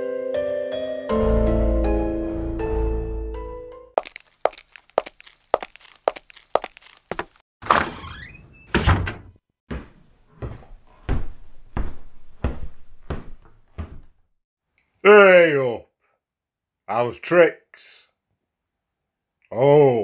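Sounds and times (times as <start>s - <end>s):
footsteps: 4.0s - 7.4s, 9.7s - 14.2s
door creaking open: 7.6s - 9.3s
door banging shut: 8.7s - 9.3s.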